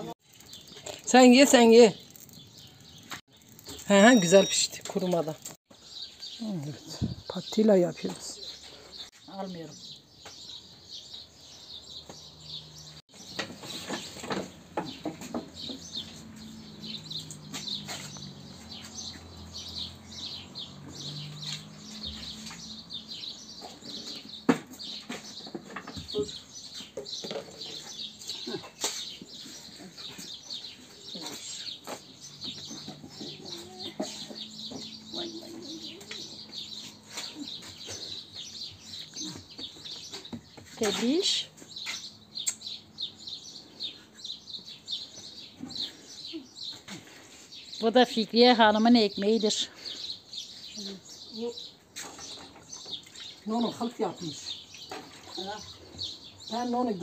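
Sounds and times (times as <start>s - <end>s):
small birds chirping: 0.0s - 57.0s.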